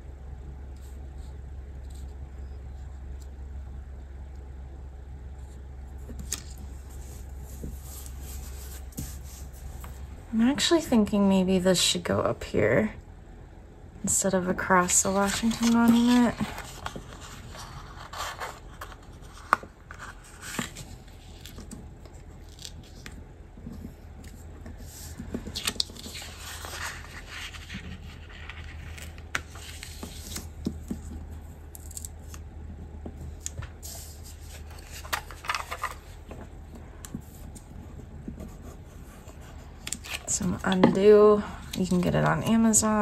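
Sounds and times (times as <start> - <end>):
faint low hum: 0.0 - 43.0
paper rustling and scraping: 5.4 - 10.1, 14.8 - 32.3, 33.8 - 43.0.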